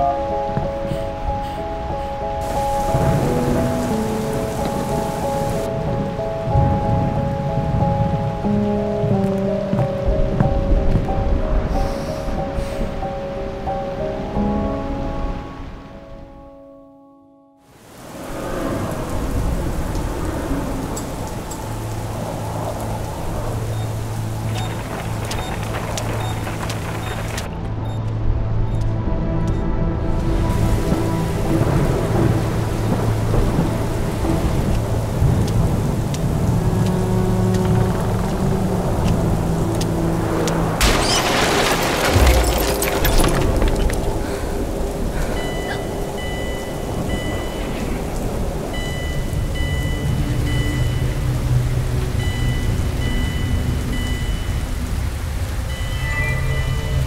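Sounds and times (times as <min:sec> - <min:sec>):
heavy rain: 0:00.0 - 0:16.4, 0:17.6 - 0:57.0
low thunder rumbling: 0:02.4 - 0:13.0, 0:18.0 - 0:27.7, 0:30.2 - 0:57.0
loud crash with crackling: 0:40.8 - 0:44.3.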